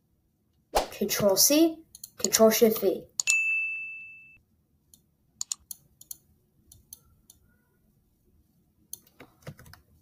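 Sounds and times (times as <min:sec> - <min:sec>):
keyboard and mouse clicks: 0:01.9 - 0:03.4, 0:04.9 - 0:07.5, 0:08.9 - 0:09.9.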